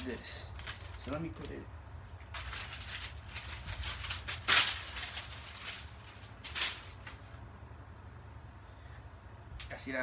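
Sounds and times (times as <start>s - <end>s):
paper rustling: 0.0s - 7.4s
handling noises: 0.0s - 7.5s.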